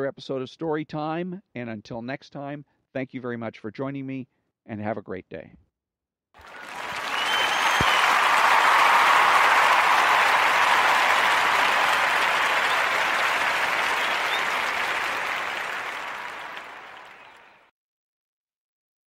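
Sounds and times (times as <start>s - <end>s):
crowd applause: 6.4s - 17.6s.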